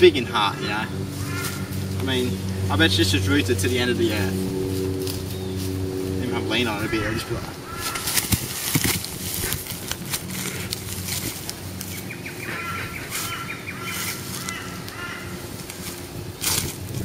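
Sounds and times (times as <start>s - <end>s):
bird chirping: 0.0s - 8.0s, 11.7s - 15.4s
footsteps in dry leaves: 0.3s - 17.0s
rustling leaf litter: 0.4s - 17.0s.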